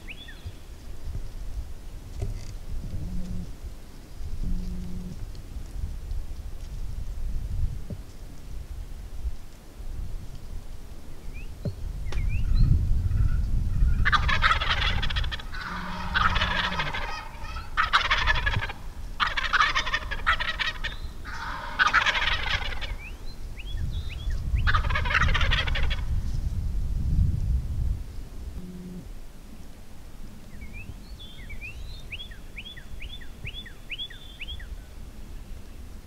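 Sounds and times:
small birds chirping: 0.0 - 0.8, 20.7 - 24.8, 30.5 - 35.9
turkey gobbling: 13.8 - 23.2, 24.6 - 26.1.

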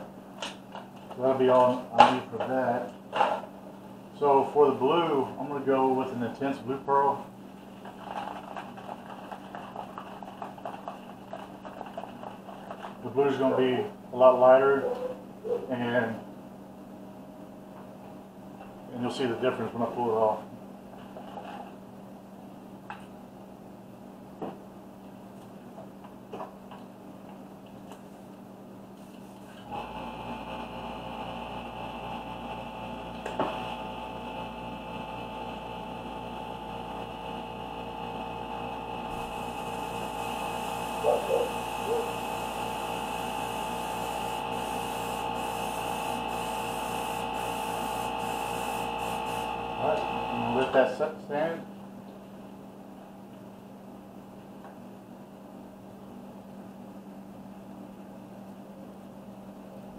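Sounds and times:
air compressor humming: 29.2 - 51.1
airbrush spraying: 39.1 - 49.6.

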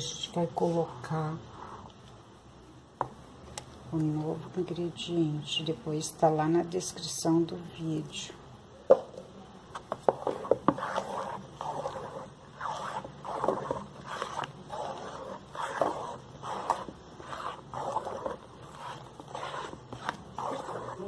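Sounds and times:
spoon stirring thick mixture in pot: 9.2 - 21.0.

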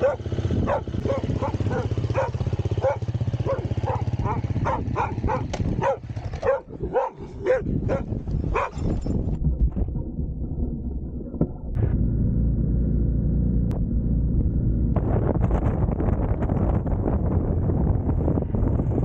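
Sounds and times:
dog barking: 0.0 - 8.9
motorcycle engines running: 0.0 - 9.1
wind noise: 0.0 - 12.0, 13.7 - 19.0.

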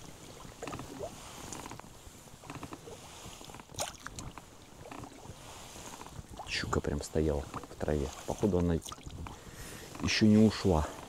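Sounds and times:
boat knocks and rustling: 0.0 - 11.0.

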